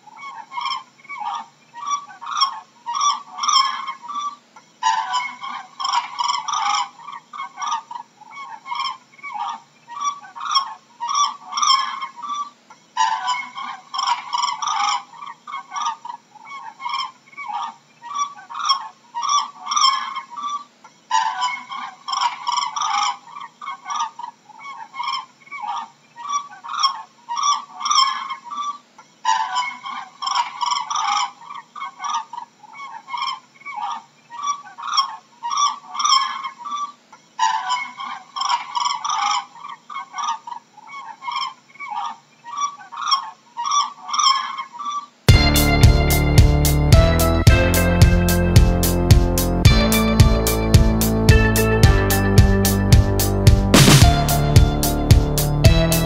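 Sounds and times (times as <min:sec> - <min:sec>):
cranes honking: 0:45.3 - 0:56.0.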